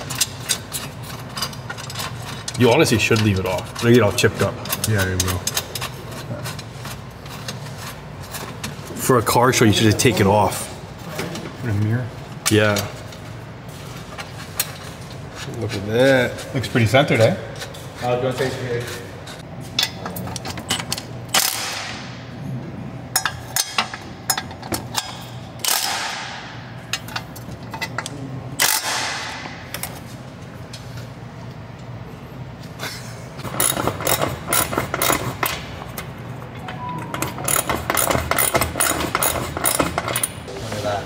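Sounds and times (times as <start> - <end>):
ratchet clicking: 33.5 - 35.5, 37.5 - 40.4.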